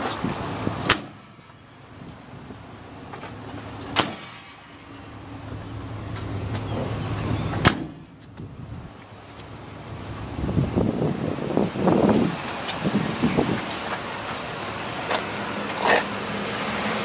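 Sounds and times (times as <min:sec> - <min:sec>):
metal doors slamming: 0:03.8 - 0:04.7, 0:06.6 - 0:08.2.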